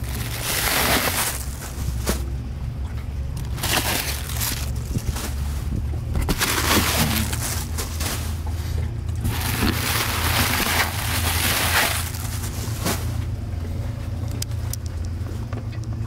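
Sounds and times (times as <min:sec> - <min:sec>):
cardboard box rustling: 0:00.0 - 0:02.2, 0:03.4 - 0:05.6, 0:06.2 - 0:08.4, 0:09.2 - 0:13.2
steady low rumble: 0:00.0 - 0:16.0.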